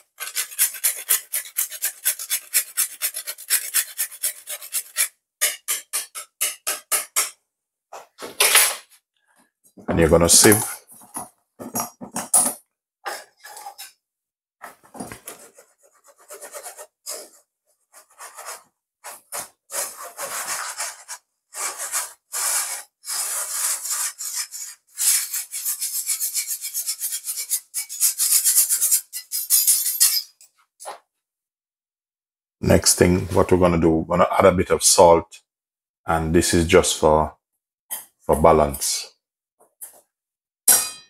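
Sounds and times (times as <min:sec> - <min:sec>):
whisk scraping a mesh sieve: 0:00.0 - 0:06.7, 0:15.3 - 0:29.7.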